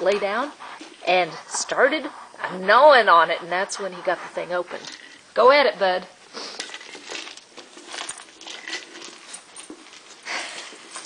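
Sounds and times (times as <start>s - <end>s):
dog sniffing: 0.0s - 7.2s.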